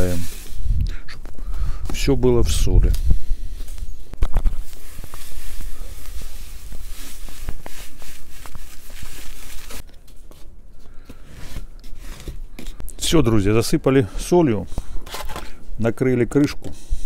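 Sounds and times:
hand spreading salt with scratching: 0.0 - 0.7, 4.6 - 9.8
salt pouring into plastic container: 4.7 - 9.8.

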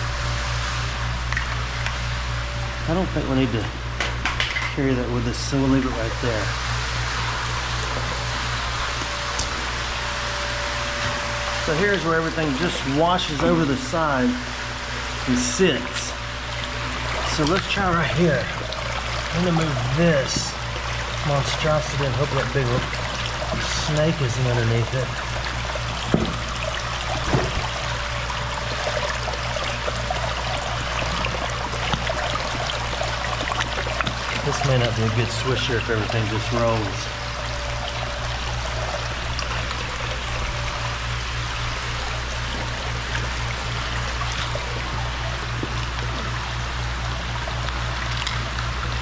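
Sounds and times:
low pulsing hum: 0.0 - 49.0
creek water trickling: 5.4 - 49.0.

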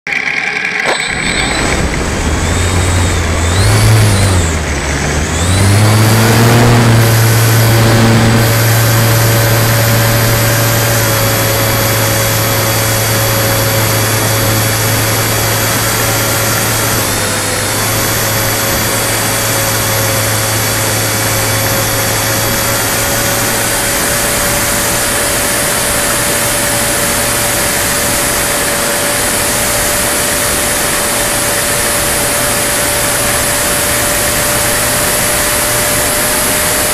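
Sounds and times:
thin high whine: 0.1 - 3.6
model plane motor drone: 0.1 - 36.9.

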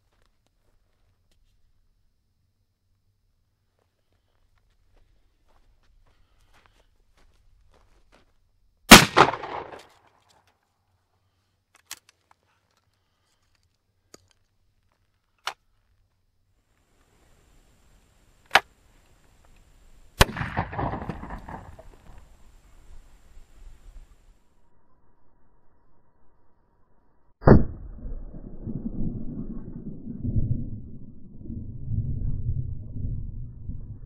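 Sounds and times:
shotgun blast with echo: 8.9 - 9.8, 20.2 - 22.2.

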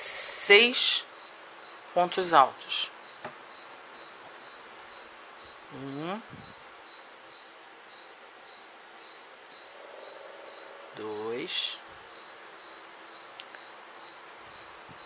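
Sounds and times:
person humming: 5.7 - 6.4.

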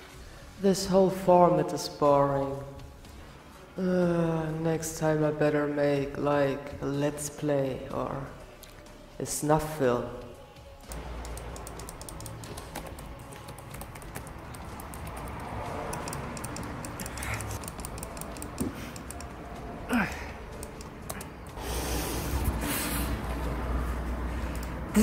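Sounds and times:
faint music: 0.0 - 25.0
keyboard keys clicking: 10.9 - 19.3.

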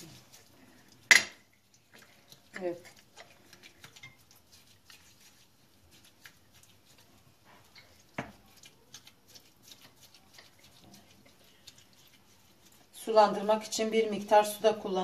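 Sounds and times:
brush stirring sauce in bowl: 0.0 - 15.0
brush tapping ceramic bowl: 2.5 - 13.4.

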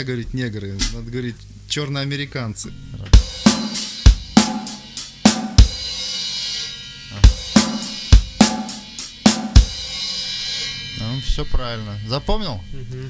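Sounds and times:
snare drum: 3.2 - 5.9, 7.4 - 9.8
bass drum: 3.2 - 6.3, 7.2 - 10.4
hi-hat: 3.2 - 11.4.

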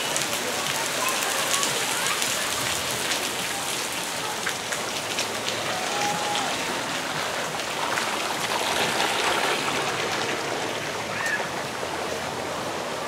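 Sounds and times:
water jets spattering on pavement: 0.0 - 13.0
water jet bubbling: 4.5 - 13.0.

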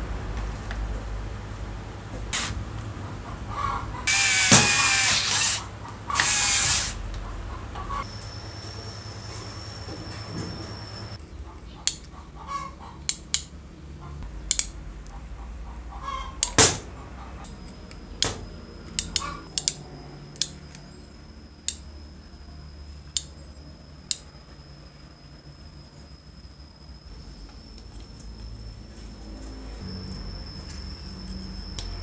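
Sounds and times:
wires and switch clicking: 11.8 - 12.1, 13.0 - 13.6, 14.2 - 15.2, 17.4 - 20.9, 21.6 - 21.9, 23.1 - 23.3.

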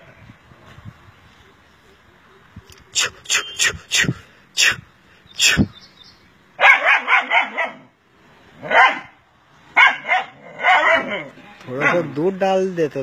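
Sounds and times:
dog barking: 6.6 - 7.9, 8.6 - 9.2, 9.8 - 12.2.

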